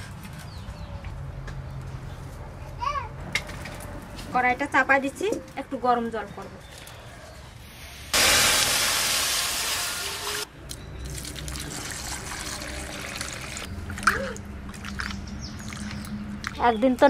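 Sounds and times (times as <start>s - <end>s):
water hissing in hot wok: 8.1s - 10.5s
water pouring and splashing: 8.2s - 16.6s.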